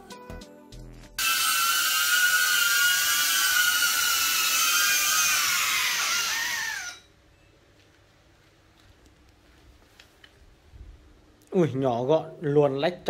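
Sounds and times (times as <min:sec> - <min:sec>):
drone propellers whining: 0:01.2 - 0:07.0.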